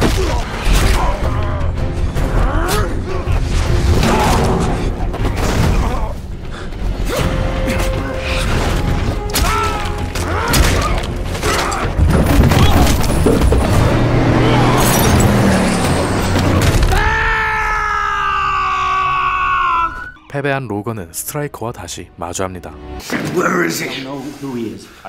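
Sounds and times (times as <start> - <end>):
dramatic orchestral score: 0.0 - 25.0
crashing shattering debris: 8.2 - 17.2.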